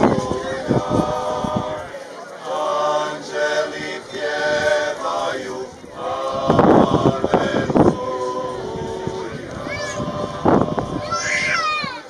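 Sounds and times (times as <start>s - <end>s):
men singing a cappella harmony: 0.0s - 1.8s, 2.5s - 11.0s
loud noise near microphone: 0.0s - 12.0s.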